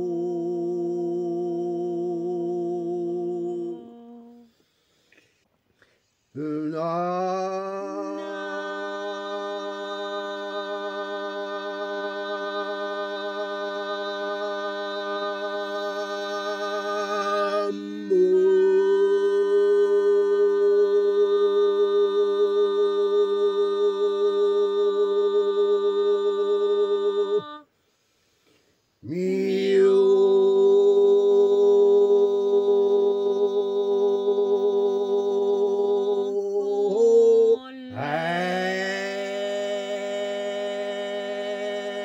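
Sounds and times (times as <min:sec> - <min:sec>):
person chanting sustained tone: 0:06.4 - 0:27.5.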